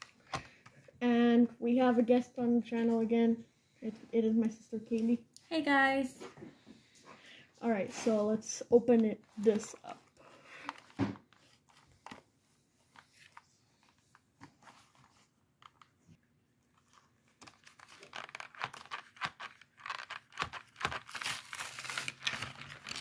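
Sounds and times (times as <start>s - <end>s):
plastic wrapper crinkling: 16.7s - 23.0s.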